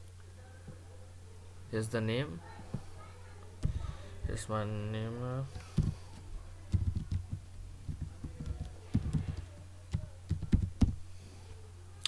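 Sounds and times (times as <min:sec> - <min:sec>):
computer keyboard keystrokes: 0:06.7 - 0:11.0.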